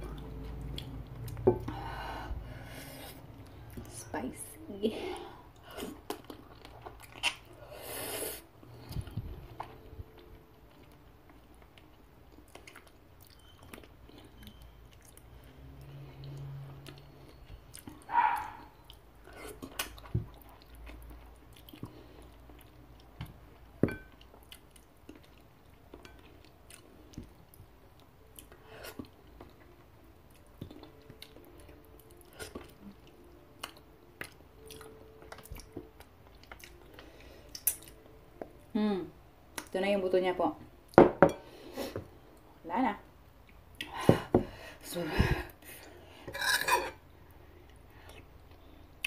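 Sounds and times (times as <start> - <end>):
wet chewing and sucking: 5.6 - 9.7.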